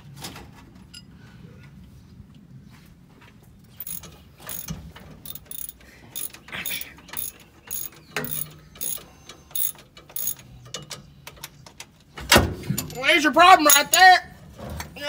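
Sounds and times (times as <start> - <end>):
ratchet wrench clicking: 3.8 - 10.4.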